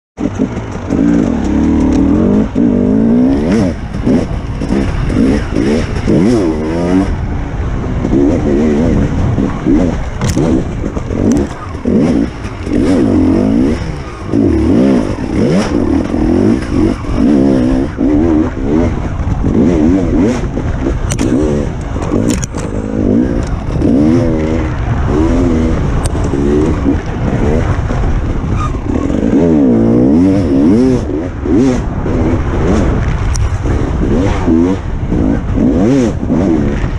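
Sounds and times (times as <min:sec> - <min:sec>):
dirt bike engine revving: 0:00.2 - 0:36.9
sharp clicks: 0:20.8 - 0:22.8.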